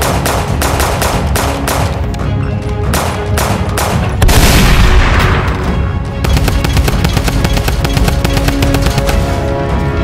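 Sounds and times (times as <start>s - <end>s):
background music: 0.0s - 10.0s
machine gun firing effects: 6.2s - 9.3s.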